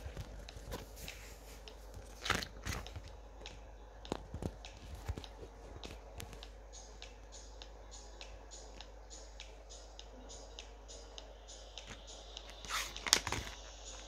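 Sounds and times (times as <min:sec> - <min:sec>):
soft hissy sounds: 0:00.0 - 0:14.0
pages turning: 0:01.9 - 0:03.0, 0:12.7 - 0:13.6.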